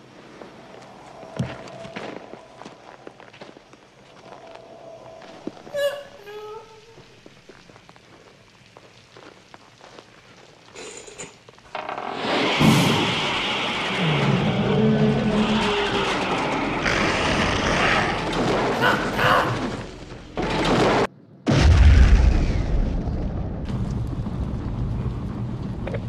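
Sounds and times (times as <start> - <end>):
explosion boom: 12.1 - 15.7, 20.6 - 26.0.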